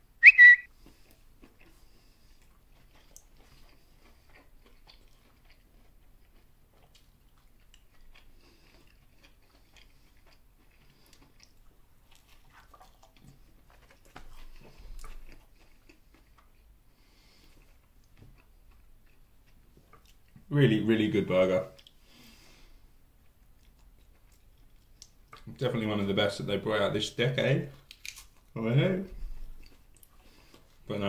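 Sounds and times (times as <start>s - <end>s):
mouth clicks: 0.2s - 0.7s
person chewing food: 0.3s - 20.5s, 21.7s - 25.5s, 27.7s - 30.9s.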